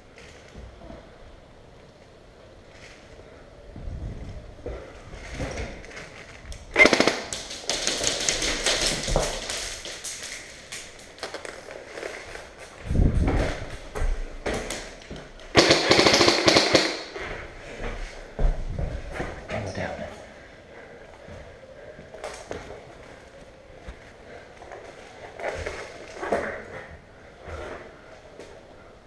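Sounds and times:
airsoft guns firing bursts: 6.8s - 8.9s, 15.5s - 17.2s.

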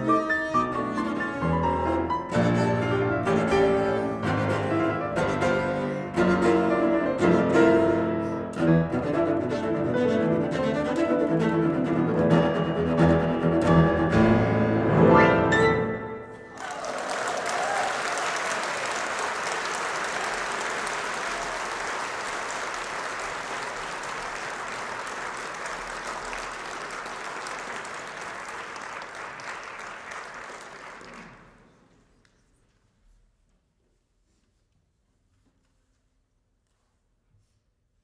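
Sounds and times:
cello and piano: 0.0s - 16.4s
audience applauding: 16.4s - 31.9s.

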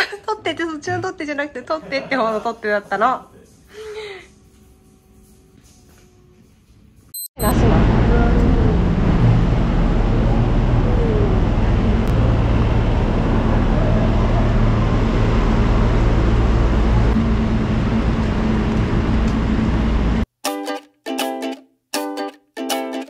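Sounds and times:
city street traffic: 7.4s - 20.2s
ukulele music: 20.4s - 23.0s.

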